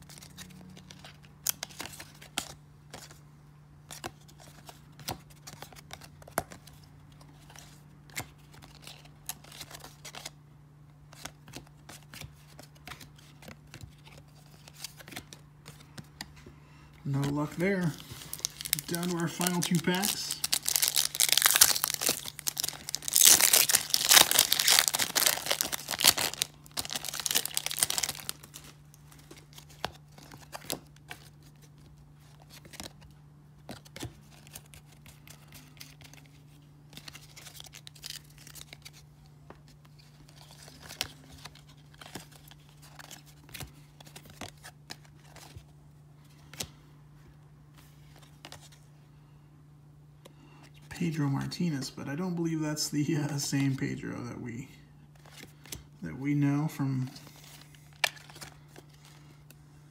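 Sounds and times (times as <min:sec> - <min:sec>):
wrapper tearing and crinkling: 0:17.8 - 0:28.7
cardboard cards flipped: 0:57.4 - 0:59.3.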